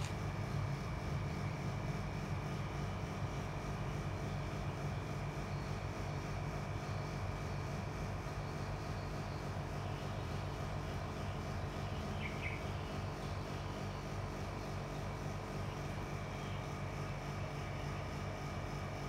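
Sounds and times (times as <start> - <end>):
distant engine drone: 8.0 - 18.8.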